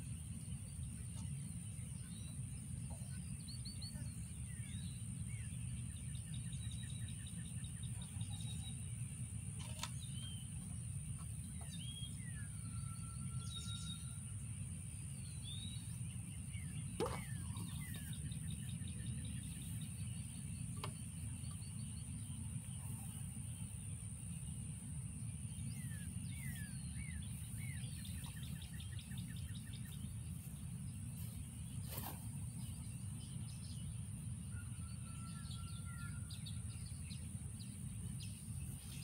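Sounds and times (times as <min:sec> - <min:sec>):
birds chirping and trilling: 0:00.0 - 0:39.0
steady low rumble: 0:13.8 - 0:34.9.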